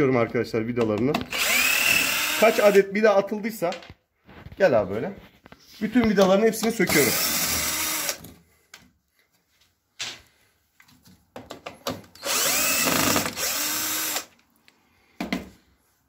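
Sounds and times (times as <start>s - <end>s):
cordless drill running: 1.3s - 2.8s, 6.9s - 8.2s, 12.2s - 14.3s.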